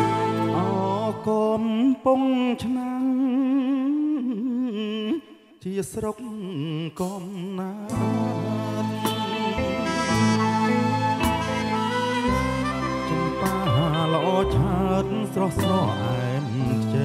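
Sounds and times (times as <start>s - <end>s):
live band backing: 0.0s - 1.4s, 7.9s - 17.0s
person singing with vibrato: 0.0s - 17.0s.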